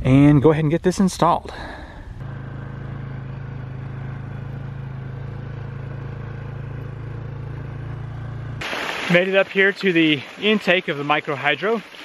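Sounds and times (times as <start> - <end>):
quad engine droning: 1.5 - 8.6.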